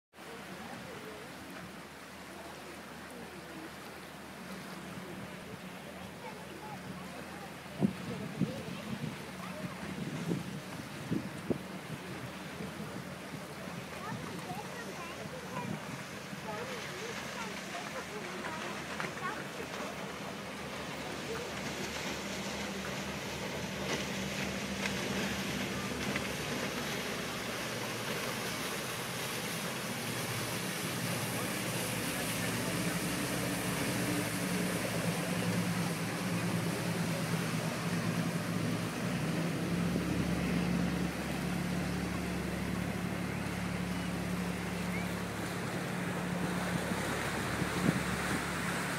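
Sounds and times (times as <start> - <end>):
wind: 0.0 - 48.9
boat engine humming: 0.1 - 48.9
waves: 0.1 - 48.9.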